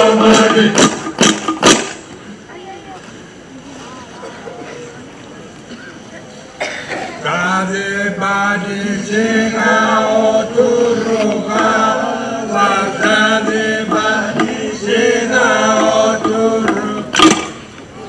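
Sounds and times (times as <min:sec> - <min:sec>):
men chanting together: 0:00.0 - 0:01.1, 0:07.2 - 0:17.2.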